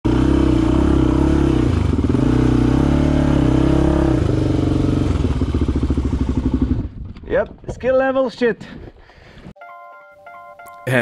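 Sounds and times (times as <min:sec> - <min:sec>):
dirt bike engine revving: 0:00.1 - 0:07.0.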